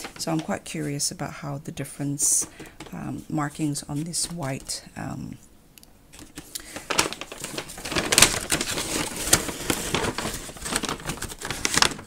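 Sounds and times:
paper bag rustling and crinkling: 0:00.0 - 0:01.1, 0:06.2 - 0:12.0.

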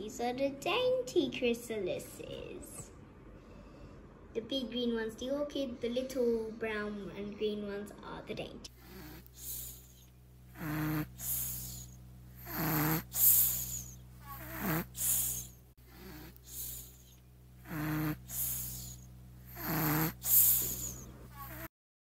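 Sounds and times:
faint steady hum: 0:00.0 - 0:21.7
person snoring: 0:08.7 - 0:21.7.

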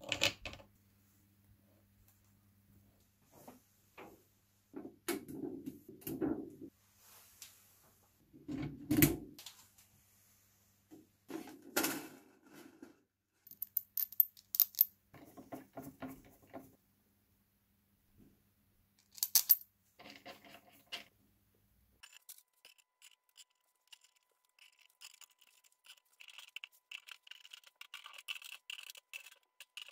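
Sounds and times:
small metallic clicks and clinks: 0:13.5 - 0:14.9, 0:19.0 - 0:21.1.

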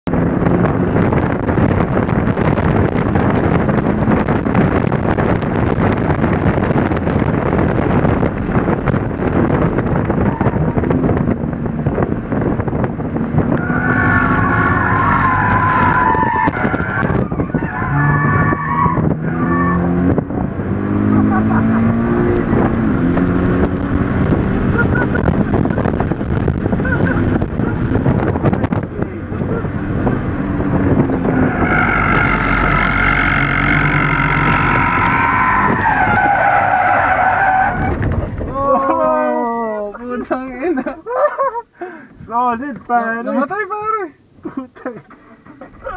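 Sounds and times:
sports car engine revving: 0:00.1 - 0:37.2
tires squealing: 0:01.2 - 0:10.8, 0:13.4 - 0:20.3, 0:21.0 - 0:39.3.

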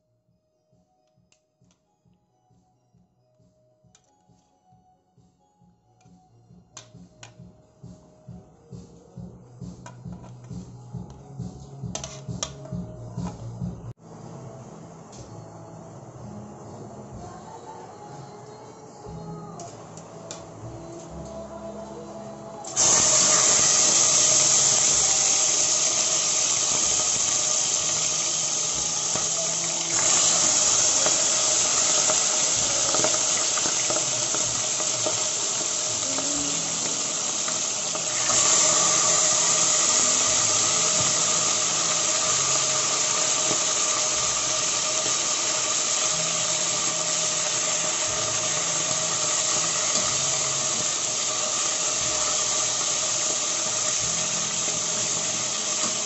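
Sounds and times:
meat sizzling in hot oil: 0:22.8 - 0:56.0.

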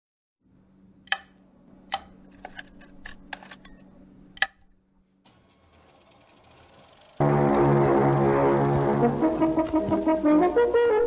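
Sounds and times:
mechanical clicks and clacks: 0:01.9 - 0:03.8, 0:05.3 - 0:07.2
film projector clattering: 0:05.3 - 0:07.2
steady hum: 0:06.6 - 0:11.0.

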